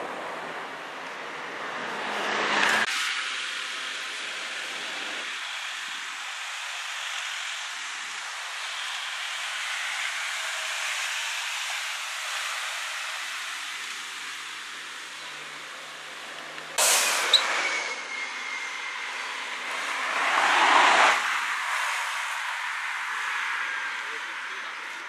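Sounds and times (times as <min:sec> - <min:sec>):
loud rush of noise: 0:00.0 - 0:25.0
traffic and tyres hissing: 0:00.0 - 0:25.0
car rolling past: 0:16.8 - 0:22.5.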